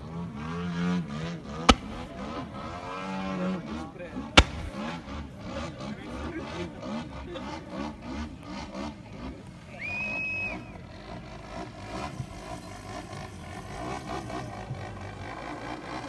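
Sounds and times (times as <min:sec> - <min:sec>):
model airplane motor running: 0:11.7 - 0:16.0.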